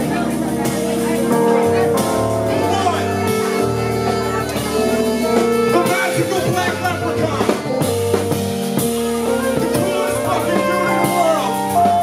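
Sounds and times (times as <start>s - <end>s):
bass line: 0.0s - 12.0s
drum kit hits: 0.0s - 12.0s
soul-jazz hip hop band playing: 0.0s - 12.0s.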